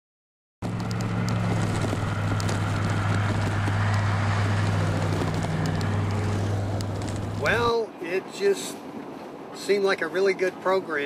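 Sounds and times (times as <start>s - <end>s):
low motor hum: 0.6s - 7.6s
wind blowing across microphone: 0.6s - 10.7s.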